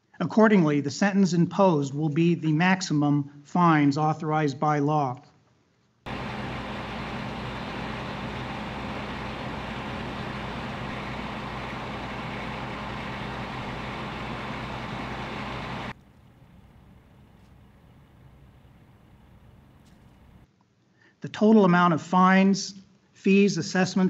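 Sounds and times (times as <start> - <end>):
vehicle engine running: 6.1 - 20.4.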